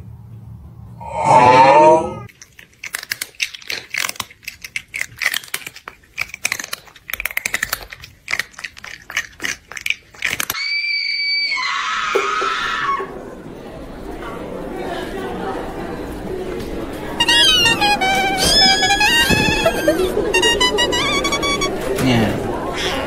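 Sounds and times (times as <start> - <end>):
crisp crunching and chewing: 2.3 - 10.6.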